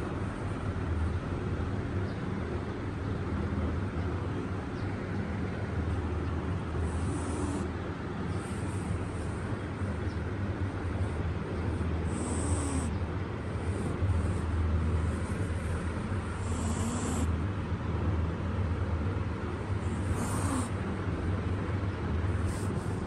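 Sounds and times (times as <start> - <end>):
steady low rumble: 0.0 - 23.0
cat hissing: 6.8 - 9.4, 12.0 - 13.0, 13.6 - 17.4, 19.8 - 20.9, 22.4 - 23.0.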